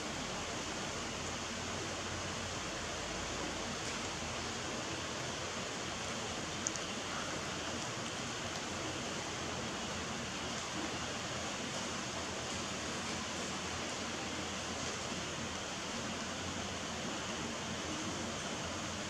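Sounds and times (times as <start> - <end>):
steady hiss: 0.0 - 19.0
faint click: 6.6 - 6.9.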